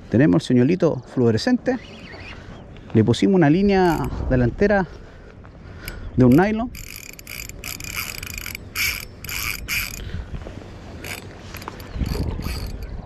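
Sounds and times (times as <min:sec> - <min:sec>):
fishing reel drag clicking: 0:03.8 - 0:04.1, 0:05.8 - 0:10.1, 0:11.0 - 0:13.0.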